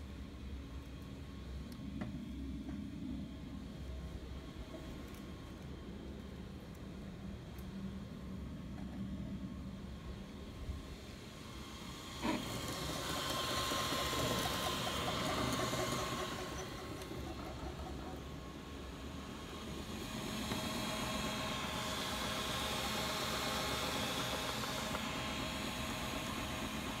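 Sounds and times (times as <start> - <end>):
cooling fans hissing: 0.0 - 27.0
stepper motors whining: 11.5 - 27.0.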